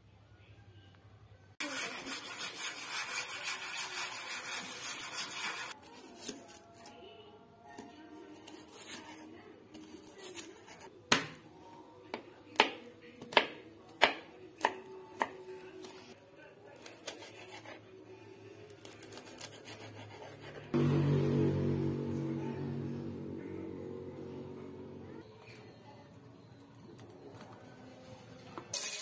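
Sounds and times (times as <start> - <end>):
knife chopping on cutting board: 12.1 - 15.4.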